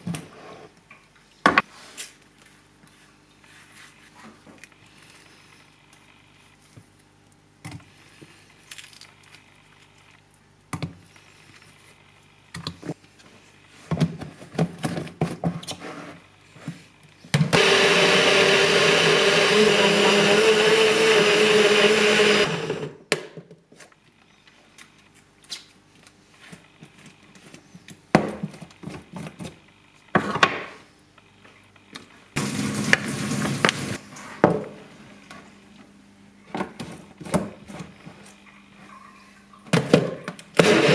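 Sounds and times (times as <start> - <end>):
blender whirring: 17.5 - 23.1, 32.4 - 34.0, 40.6 - 40.9.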